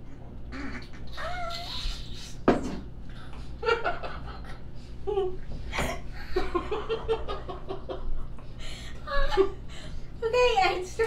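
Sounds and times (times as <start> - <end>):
woman laughing hard: 9.0 - 9.7.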